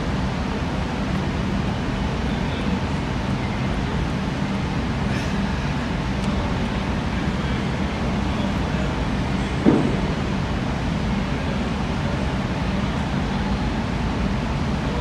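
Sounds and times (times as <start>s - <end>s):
low room rumble and hum: 0.0s - 15.0s.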